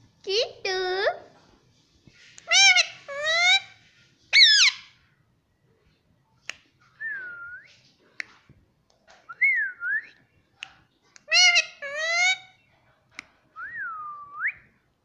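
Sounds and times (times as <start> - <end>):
parakeet calling: 2.4 - 4.9, 11.3 - 12.6
parakeet squawk: 2.4 - 5.0, 11.3 - 12.6.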